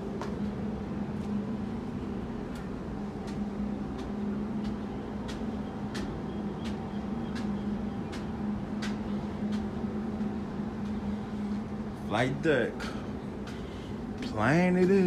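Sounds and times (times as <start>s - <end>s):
footsteps on steel stairs: 0.0s - 15.0s
steady low hum: 0.0s - 15.0s.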